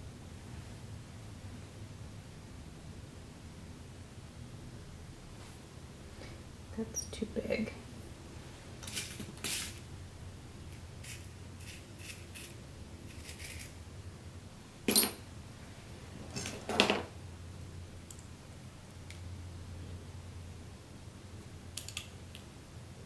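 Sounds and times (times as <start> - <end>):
tools clattering on a mat: 14.9 - 15.2, 16.3 - 17.1
faint clicks of glass pieces: 21.8 - 22.5.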